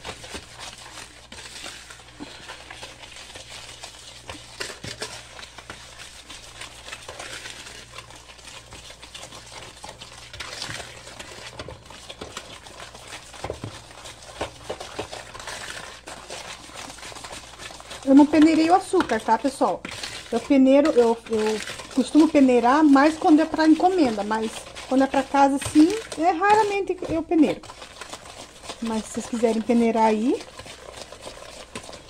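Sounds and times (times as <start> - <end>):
wire whisk beating in a bowl: 0.0 - 32.0.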